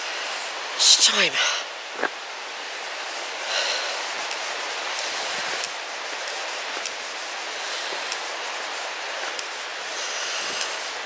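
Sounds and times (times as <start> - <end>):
river flowing over rocks: 0.0 - 11.0
faint irregular ticks: 3.6 - 11.0.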